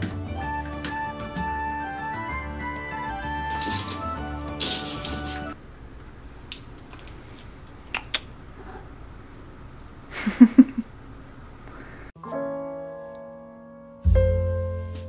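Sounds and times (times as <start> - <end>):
soft piano music: 0.0 - 5.6, 12.2 - 15.0.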